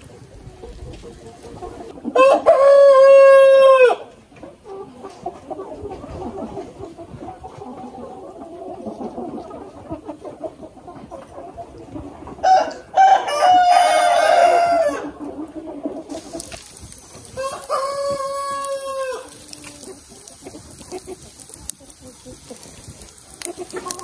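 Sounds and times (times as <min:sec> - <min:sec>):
chickens clucking: 0:00.0 - 0:24.0
rooster crowing: 0:02.2 - 0:04.0, 0:12.4 - 0:15.1, 0:17.4 - 0:19.8.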